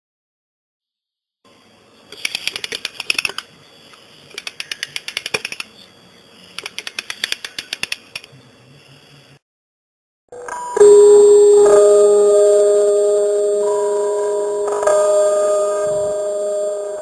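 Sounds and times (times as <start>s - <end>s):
typewriter keys clicking: 2.2s - 3.4s, 4.3s - 5.7s, 6.6s - 8.3s.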